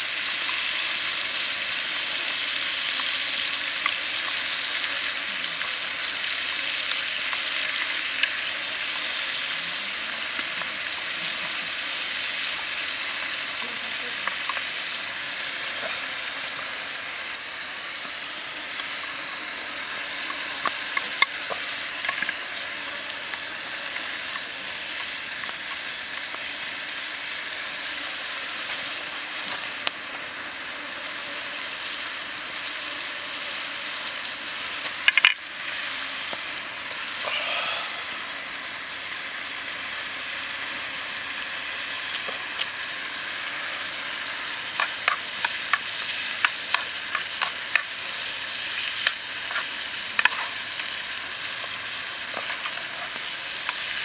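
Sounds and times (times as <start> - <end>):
food frying in oil: 0.0 - 54.0
small pops and clicks: 34.8 - 35.4.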